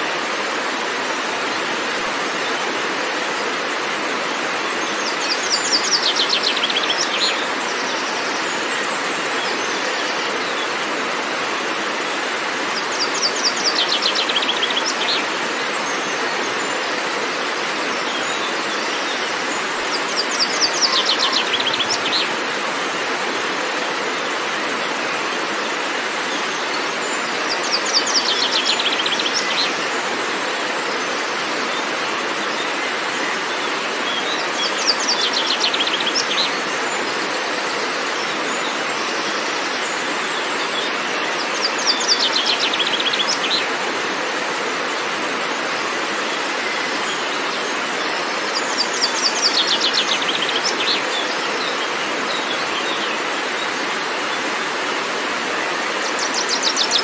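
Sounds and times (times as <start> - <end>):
waterfall rushing over rocks: 0.0 - 57.0
songbird singing: 4.7 - 10.8, 17.8 - 22.6, 25.6 - 43.9, 46.1 - 54.4.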